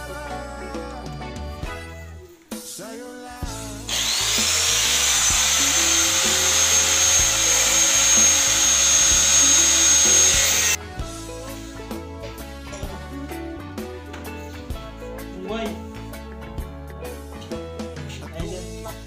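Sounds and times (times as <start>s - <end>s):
background music: 0.0s - 19.0s
angle grinder whining: 3.9s - 10.8s.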